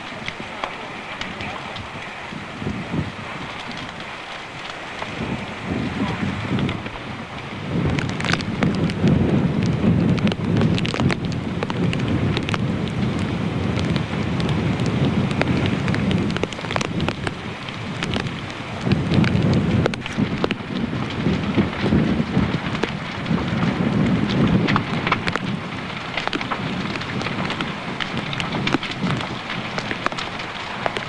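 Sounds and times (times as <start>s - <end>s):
fire crackling and popping: 0.0s - 31.0s
low fire rumble: 0.0s - 31.0s.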